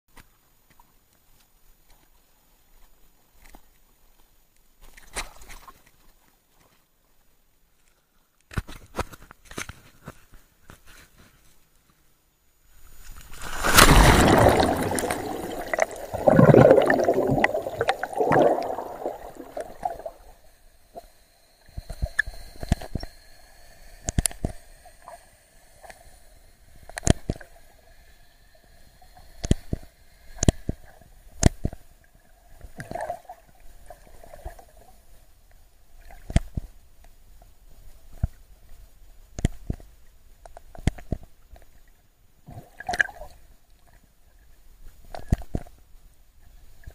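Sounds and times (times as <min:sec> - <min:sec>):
faint underwater hum: 0:09.8 - 0:46.9
water splashing and rushing: 0:13.3 - 0:20.3.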